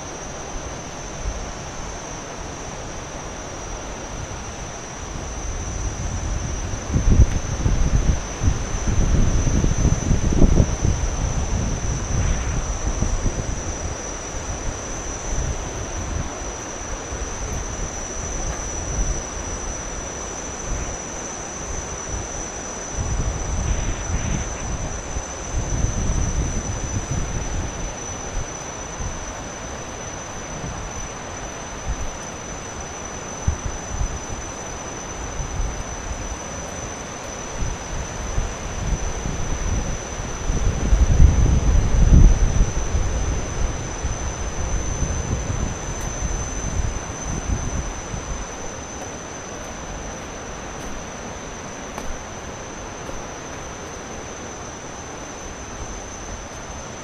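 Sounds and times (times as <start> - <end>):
wind buffeting microphone: 5.1 - 19.7, 22.9 - 31.1, 37.6 - 48.8.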